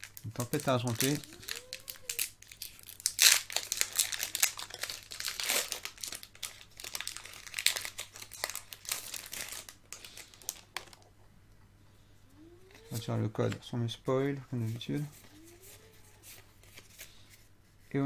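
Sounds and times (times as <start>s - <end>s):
foil wrapper crinkling: 0.0s - 11.1s.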